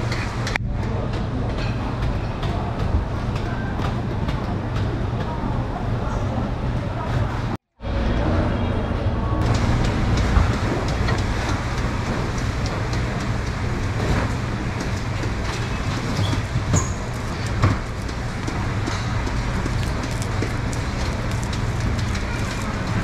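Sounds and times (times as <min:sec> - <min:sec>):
low machine hum and rumble: 0:00.0 - 0:23.0.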